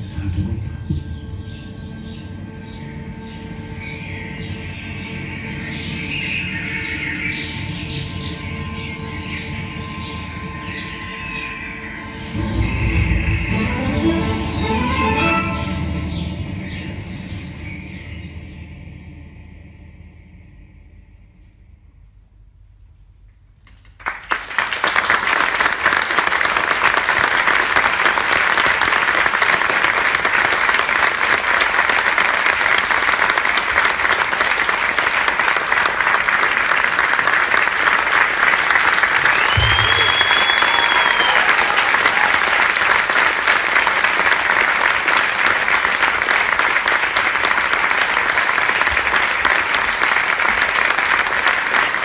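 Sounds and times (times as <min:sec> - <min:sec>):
audience applauding: 0:23.6 - 0:52.0.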